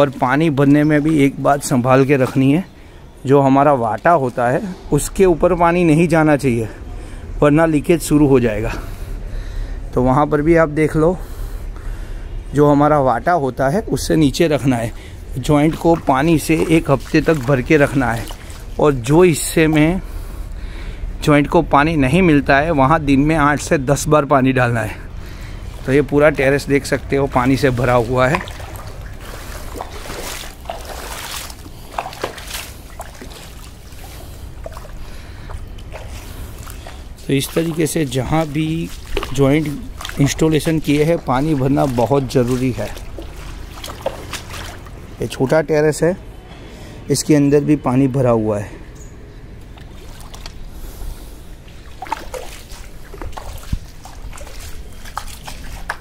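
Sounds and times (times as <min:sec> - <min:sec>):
small splashes: 0:00.0 - 0:03.0, 0:14.5 - 0:20.2, 0:25.0 - 0:45.3, 0:49.6 - 0:56.0
water trickling and lapping: 0:00.0 - 0:47.0, 0:48.7 - 0:56.0.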